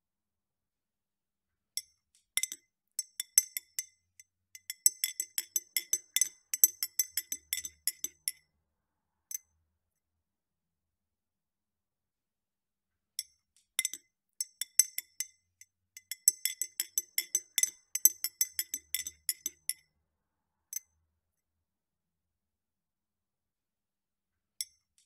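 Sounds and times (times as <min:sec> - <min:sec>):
teaspoon clinking in glass: 0:04.6 - 0:08.4, 0:16.0 - 0:19.8.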